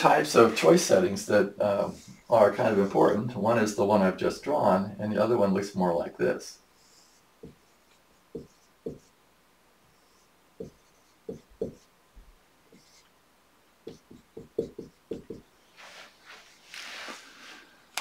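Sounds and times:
marker drawing on whiteboard: 6.8 - 9.2, 9.9 - 11.9, 12.6 - 13.2, 13.8 - 17.1.

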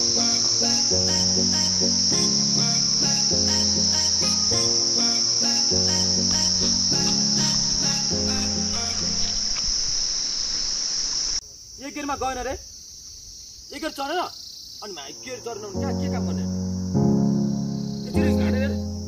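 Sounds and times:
background music: 0.0 - 9.4, 15.0 - 19.0
forest insects droning: 0.0 - 19.0.

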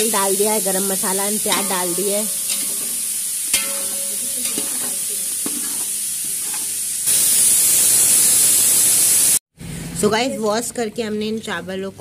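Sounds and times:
onions sizzling in oil: 0.0 - 9.4
metal spoon clinking on pot: 1.5 - 6.7.

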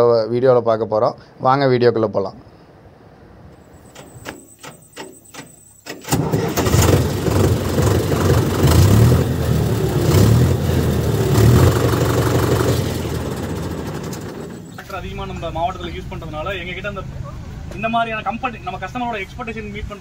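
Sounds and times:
sharp clicks: 3.9 - 6.2
diesel tractor engine running: 4.0 - 17.9.

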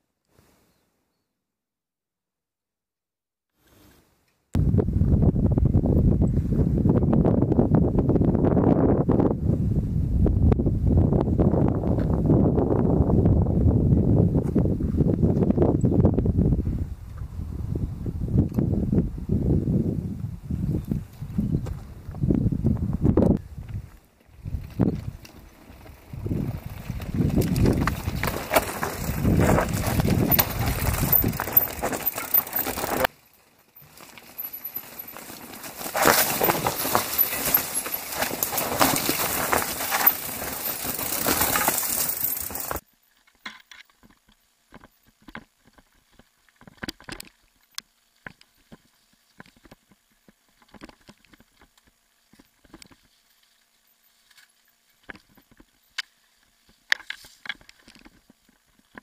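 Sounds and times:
bike tyres crunching over stones: 20.9 - 59.0
bike knocks and rattles: 23.6 - 47.3.

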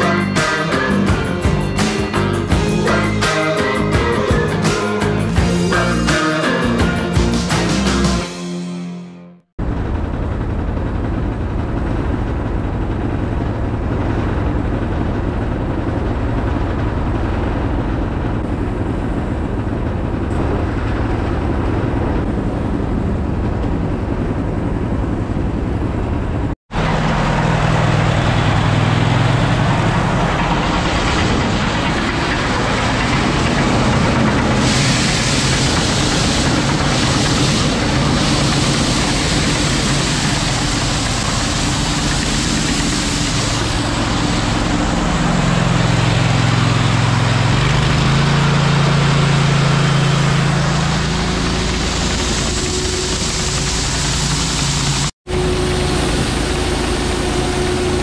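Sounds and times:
truck engine running: 0.0 - 8.2, 9.6 - 58.0
engine with low hum: 9.5 - 58.0
hiss of corn pouring: 34.3 - 44.0.

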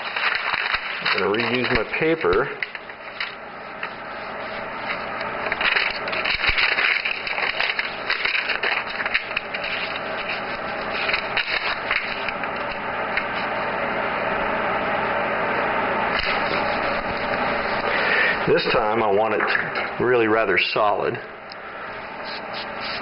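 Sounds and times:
airbrush hissing compressed air: 22.2 - 23.0.

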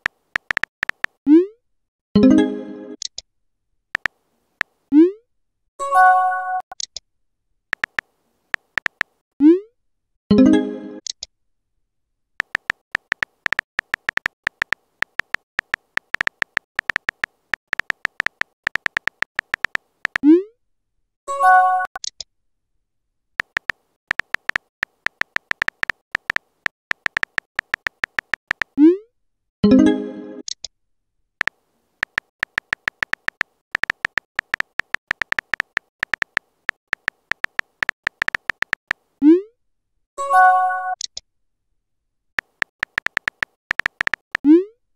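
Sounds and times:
phone keyboard typing clicks: 0.0 - 1.2, 4.0 - 4.7, 7.7 - 9.2, 12.4 - 20.2, 23.4 - 28.8, 31.4 - 39.0, 42.4 - 44.5.

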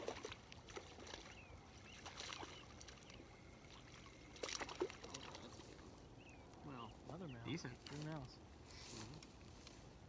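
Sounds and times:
fish splashing in water: 0.0 - 6.0.

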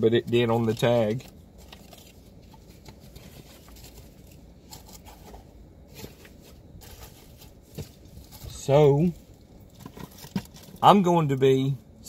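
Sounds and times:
low room hum: 0.0 - 12.0
paper rustling: 0.3 - 9.2.

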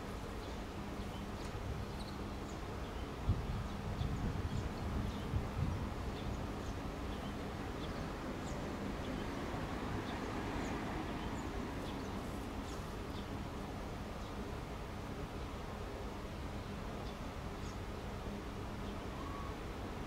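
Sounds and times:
faint high bird chirps: 18.9 - 19.6.

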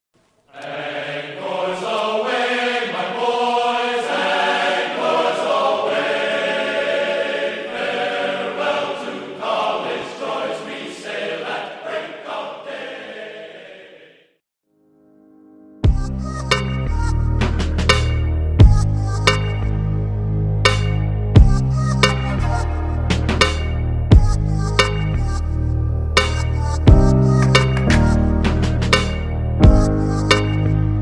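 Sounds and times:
music with sustained voices: 0.5 - 14.2, 21.4 - 31.0.

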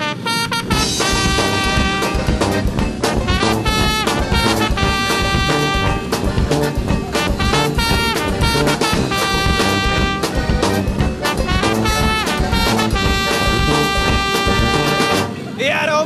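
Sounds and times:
instrumental music with steady beat: 0.2 - 15.4.

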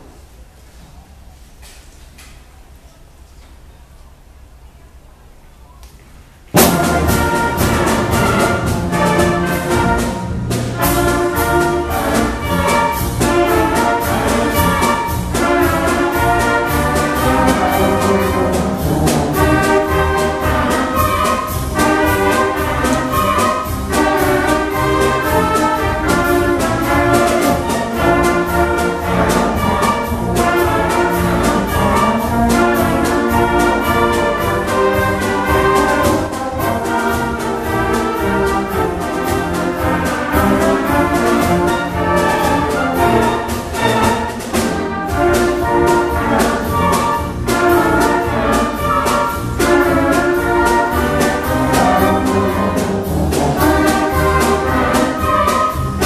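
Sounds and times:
concert band playing a march: 6.5 - 56.0.

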